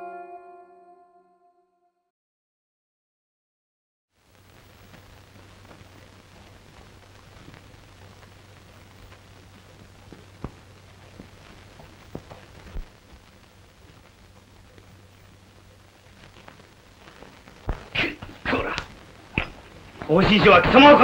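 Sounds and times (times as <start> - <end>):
film soundtrack hiss: 4.1 - 21.0
faint crackles: 4.2 - 21.0
constant low hum: 4.4 - 21.0.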